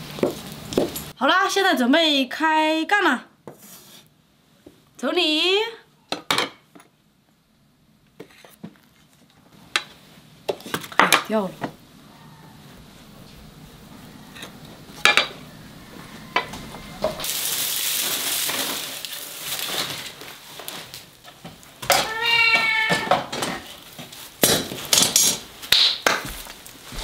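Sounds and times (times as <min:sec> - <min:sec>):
dry straw rustling: 0:17.1 - 0:22.5, 0:26.3 - 0:27.0
cat meowing: 0:21.9 - 0:23.7.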